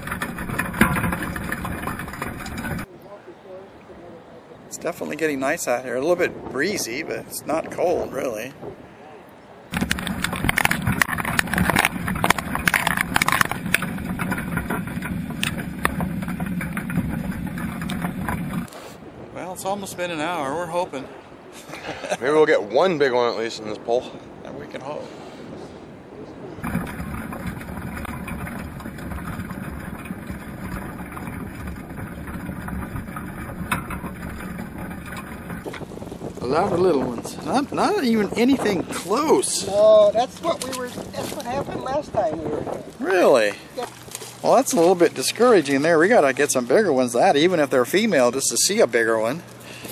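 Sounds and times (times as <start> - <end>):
crabs clicking and scraping: 0.0 - 2.9, 9.7 - 18.8, 26.6 - 37.0, 42.8 - 46.5
underwater low drone: 26.6 - 36.4.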